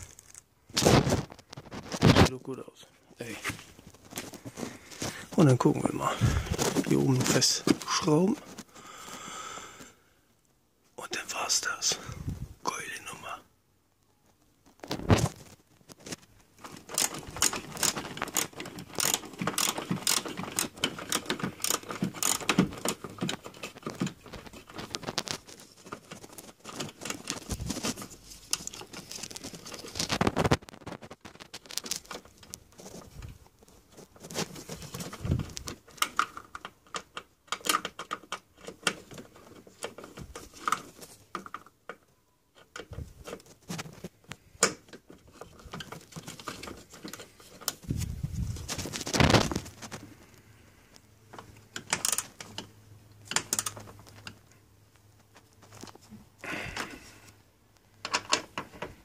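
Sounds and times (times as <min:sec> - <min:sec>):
tools and plastic parts clicking: 0:14.8 - 0:47.8, 0:51.3 - 0:54.5, 0:57.9 - 0:59.0.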